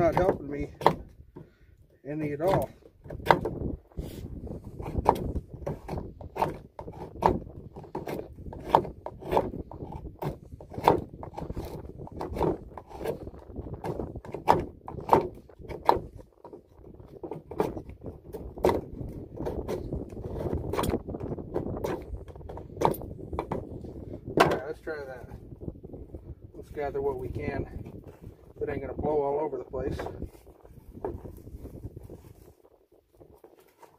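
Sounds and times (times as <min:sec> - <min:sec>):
wind buffeting microphone: 0:00.0 - 0:33.8
knife shaving wood: 0:04.0 - 0:23.0.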